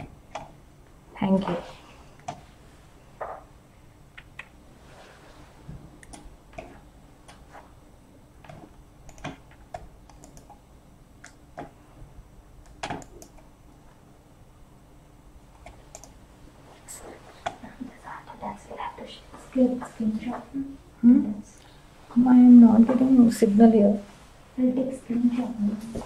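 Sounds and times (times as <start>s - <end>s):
keyboard and mouse clicks: 0.0s - 0.6s, 2.2s - 2.4s, 4.1s - 4.6s, 6.0s - 7.5s, 8.4s - 10.6s, 11.2s - 11.8s, 12.6s - 13.5s, 15.5s - 16.2s
faint steady hum: 0.0s - 26.0s.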